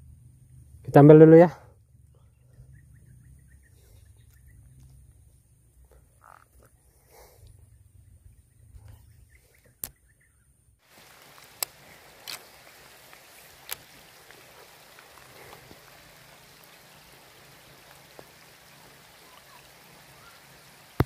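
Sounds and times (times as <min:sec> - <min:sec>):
frogs croaking: 0:06.0 - 0:06.8
light rain hiss: 0:10.8 - 0:21.0
raindrop taps: 0:10.9 - 0:21.0.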